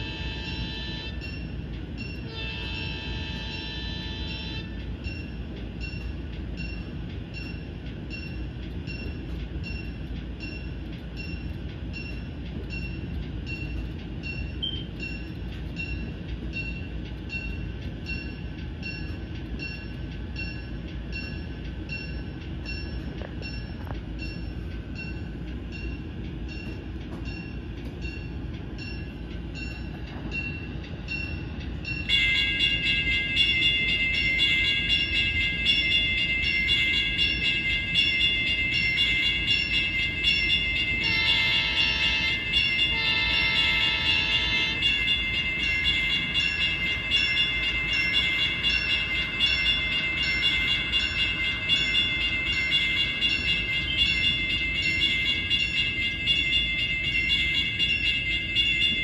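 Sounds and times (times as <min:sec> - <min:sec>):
locomotive bell ringing: 0:00.0 - 0:59.0
model locomotive diesel rumble: 0:00.0 - 0:59.0.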